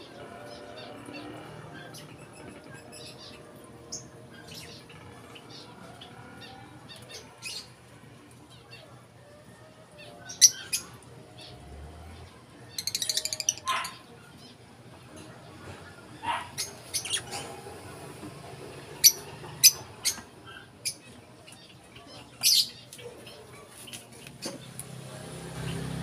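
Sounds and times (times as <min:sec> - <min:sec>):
small birds chirping: 0:00.0 - 0:26.0
rapid chattering bird notes: 0:12.8 - 0:14.0.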